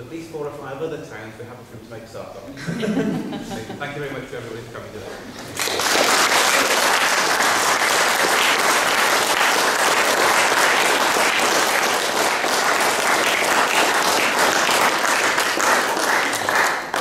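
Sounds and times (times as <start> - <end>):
crowd applauding: 5.4 - 17.0.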